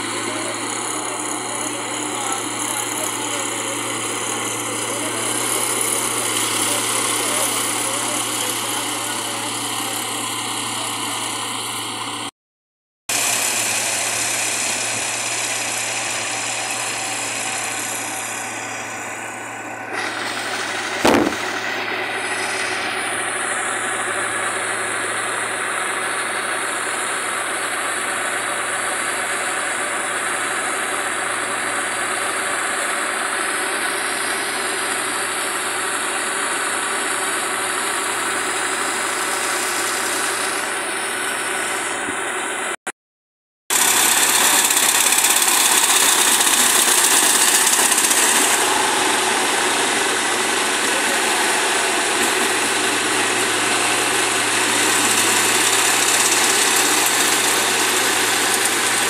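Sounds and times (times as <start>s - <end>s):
combine harvester running: 0.0s - 12.3s, 13.1s - 42.8s, 43.7s - 59.0s
sharp knock: 21.0s - 21.6s.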